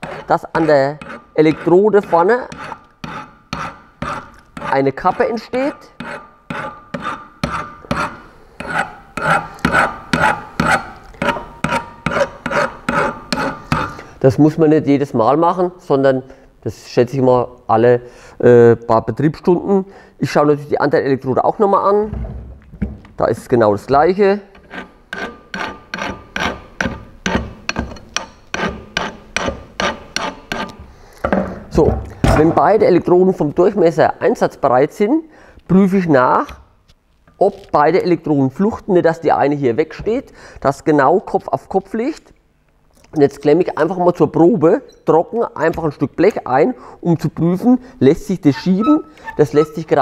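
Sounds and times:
hand file strokes on metal: 0.0s - 14.0s, 24.6s - 30.8s, 48.5s - 50.0s.

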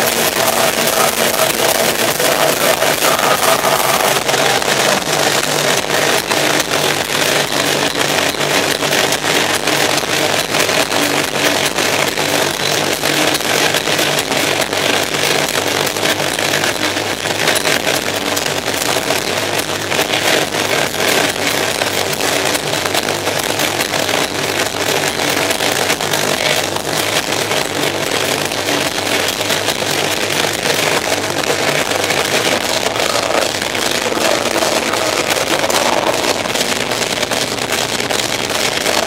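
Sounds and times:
distorted electric guitar: 0.0s - 39.0s
fast dense drumming: 0.0s - 39.0s.

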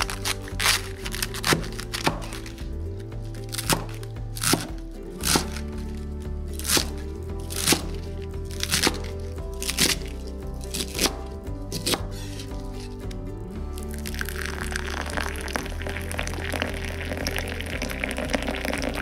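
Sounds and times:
cleaver chopping cabbage on wood: 0.0s - 2.6s, 3.4s - 5.8s, 6.5s - 12.9s
background music with bass: 0.0s - 19.0s.

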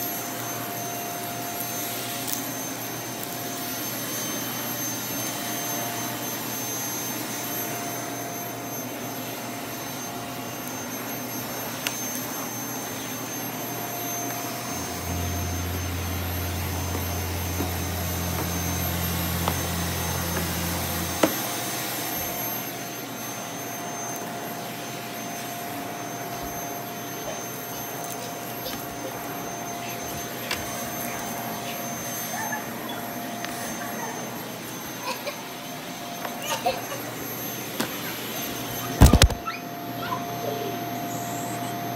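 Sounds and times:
stick vacuum cleaner running: 0.0s - 41.9s.

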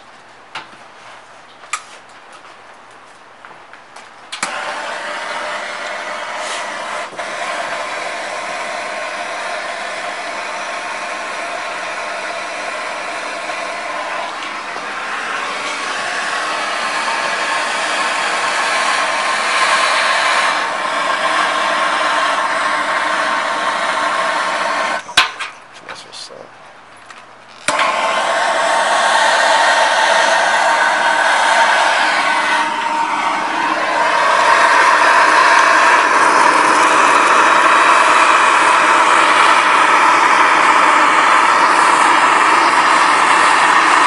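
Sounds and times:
gas torch hissing: 4.4s - 25.4s, 27.6s - 44.0s.

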